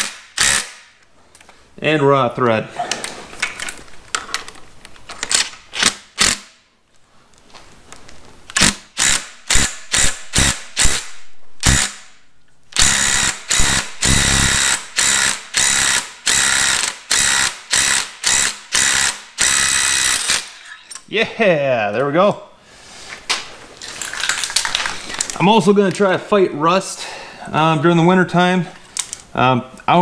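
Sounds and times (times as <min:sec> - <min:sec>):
ratchet clicking: 0:12.8 - 0:20.7.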